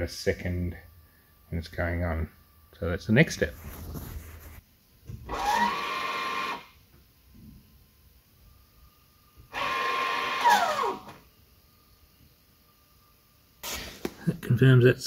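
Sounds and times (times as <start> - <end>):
faint high hum: 0.0 - 15.0
small electric motor whining: 5.3 - 6.8, 9.5 - 11.2.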